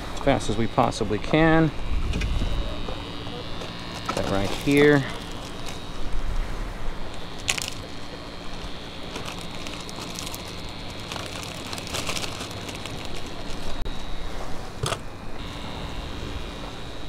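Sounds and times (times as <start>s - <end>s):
plastic bag crinkling: 3.2s - 6.2s, 6.9s - 13.9s.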